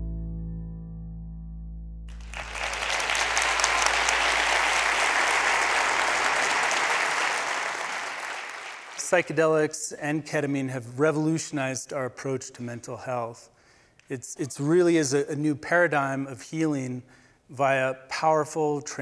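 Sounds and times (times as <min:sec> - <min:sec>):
audience applauding: 0:02.1 - 0:09.4.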